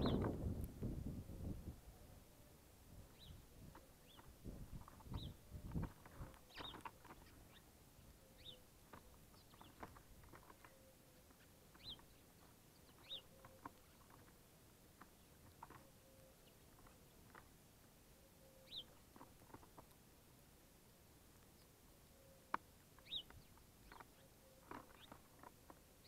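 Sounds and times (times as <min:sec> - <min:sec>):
birds cracking seeds: 0:03.4 - 0:17.6, 0:18.5 - 0:20.1, 0:21.2 - 0:26.0.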